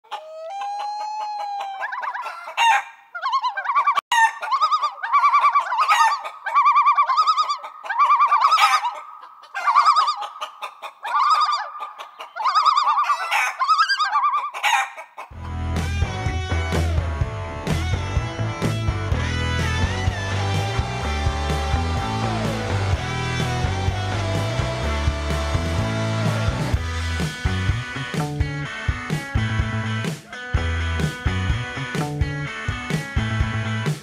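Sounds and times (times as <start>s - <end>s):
chickens clucking: 0.0s - 15.5s
rooster crowing: 0.1s - 3.0s, 3.8s - 9.0s, 12.4s - 15.0s
rock music with guitar: 15.4s - 34.0s.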